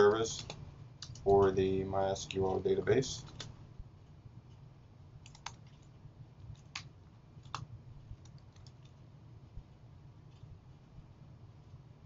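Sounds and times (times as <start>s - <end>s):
low steady hum: 0.0s - 12.0s
keyboard keystrokes: 5.2s - 5.9s.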